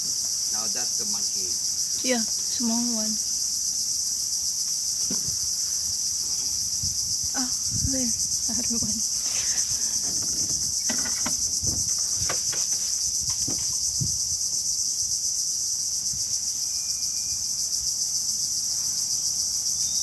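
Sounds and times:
insects buzzing chorus: 0:00.0 - 0:20.0
soft knocks and rustles: 0:09.2 - 0:14.1.

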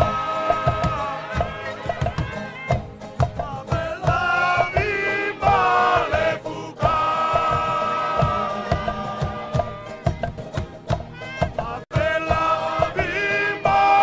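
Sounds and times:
group chanting in unison: 0:00.0 - 0:02.0, 0:03.8 - 0:10.1, 0:11.7 - 0:14.0
struck percussion beat: 0:00.0 - 0:14.0.

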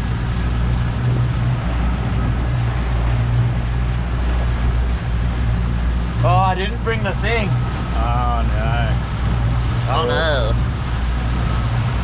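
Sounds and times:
motorboat engine droning: 0:00.0 - 0:12.0
water rushing past hull: 0:00.0 - 0:12.0
wind on microphone: 0:00.0 - 0:12.0.

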